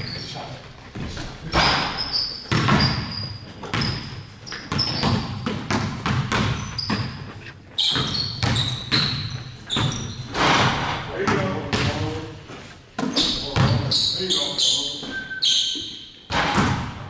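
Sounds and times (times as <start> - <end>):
sneaker squeaks: 0.0 - 12.0, 12.6 - 16.9
basketballs bouncing on hardwood: 0.9 - 12.3, 13.0 - 14.0, 16.3 - 17.0.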